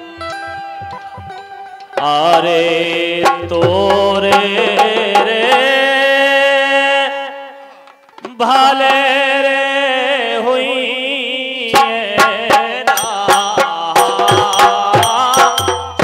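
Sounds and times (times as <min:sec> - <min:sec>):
sharp drum strokes: 0:00.0 - 0:05.2, 0:12.3 - 0:16.0
man singing: 0:00.0 - 0:16.0.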